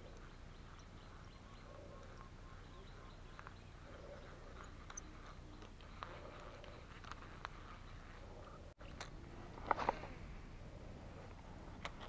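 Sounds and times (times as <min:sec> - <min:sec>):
faint animal calls: 0:00.0 - 0:08.7.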